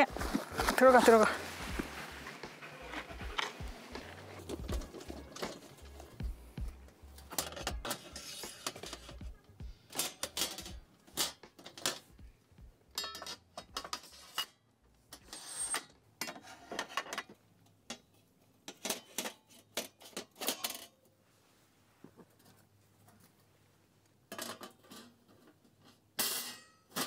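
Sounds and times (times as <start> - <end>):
camping gear clicking and clattering: 0.0 - 12.3, 12.9 - 14.4.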